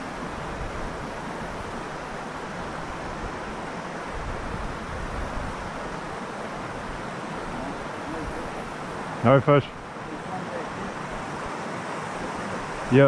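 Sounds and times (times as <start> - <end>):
wind rumbling on microphone: 0.0 - 9.0
mountain stream over rocks: 0.0 - 13.0.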